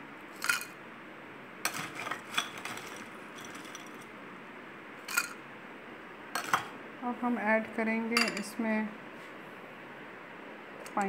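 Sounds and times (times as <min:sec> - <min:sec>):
spoon clinking against glass: 0:05.1 - 0:05.4, 0:08.2 - 0:08.5.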